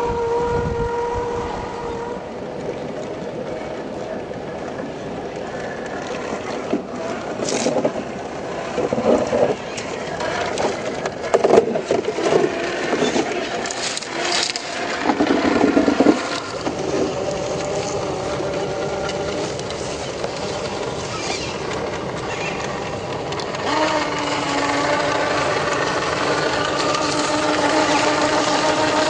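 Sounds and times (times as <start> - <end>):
toy truck scraping on stone: 6.5 - 29.0.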